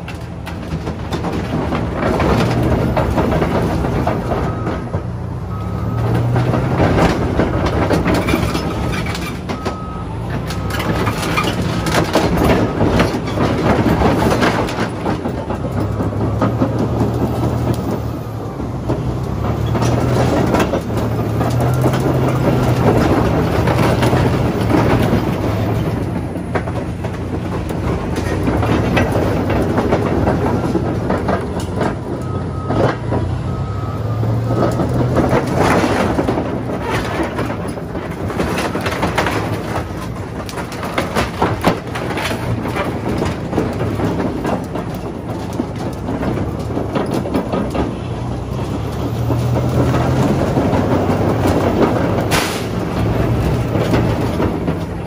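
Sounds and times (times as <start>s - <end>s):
bulldozer diesel engine working hard: 0.0s - 55.0s
metal body crunching and cracking: 34.6s - 55.0s.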